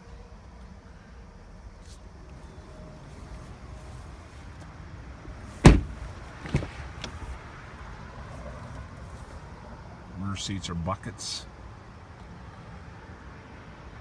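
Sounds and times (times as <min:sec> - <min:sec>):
car door slamming: 0:05.6 - 0:06.8.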